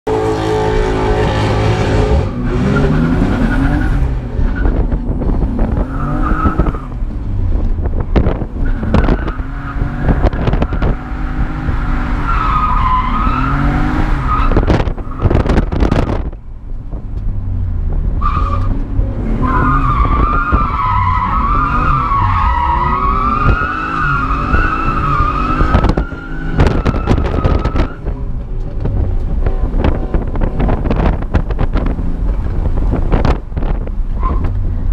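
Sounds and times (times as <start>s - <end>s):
car engine revving: 0.1s - 16.3s.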